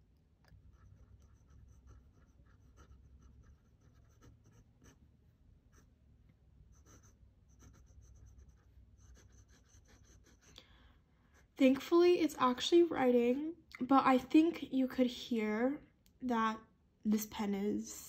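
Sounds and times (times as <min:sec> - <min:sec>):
pen nib scratching on paper: 0:00.5 - 0:05.1, 0:06.7 - 0:10.5.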